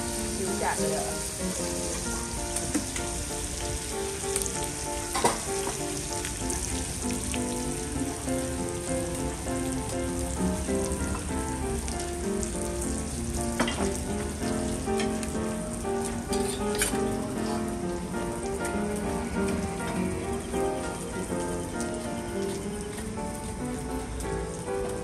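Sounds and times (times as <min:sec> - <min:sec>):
oil sizzling in a wok: 0:00.0 - 0:25.0.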